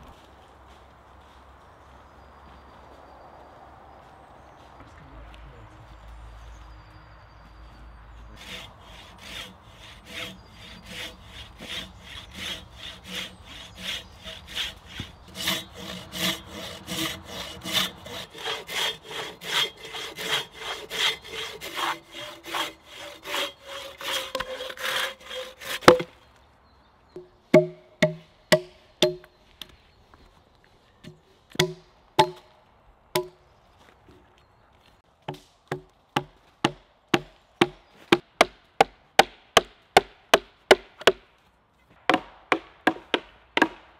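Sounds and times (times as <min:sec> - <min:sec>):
hand saw cutting log: 0:08.4 - 0:26.1
mallet knocking wooden stake: 0:25.7 - 0:26.1, 0:27.2 - 0:29.3, 0:31.5 - 0:32.4, 0:33.2 - 0:33.4, 0:42.1 - 0:43.8.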